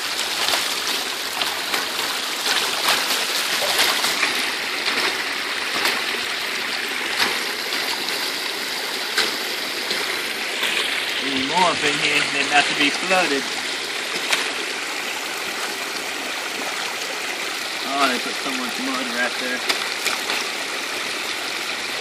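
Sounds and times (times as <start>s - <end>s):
short splashes or knocks: 0.0s - 6.3s, 7.1s - 8.4s
creek water rushing over dam: 0.0s - 22.0s.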